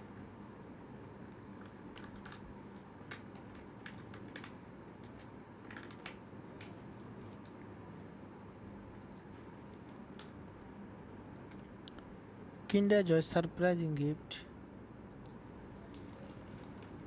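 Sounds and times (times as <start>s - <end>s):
thin plastic clicks and crinkles: 1.6s - 7.6s.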